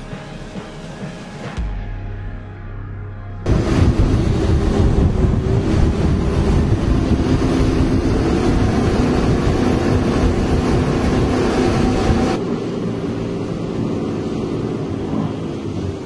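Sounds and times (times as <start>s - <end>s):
outboard boat engines running: 3.5s - 16.0s
rush of wind and water: 3.5s - 16.0s.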